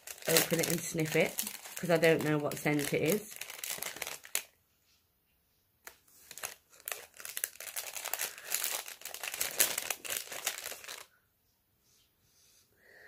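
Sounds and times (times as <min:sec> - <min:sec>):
plastic packet crinkling: 0:00.0 - 0:04.6, 0:05.8 - 0:11.1.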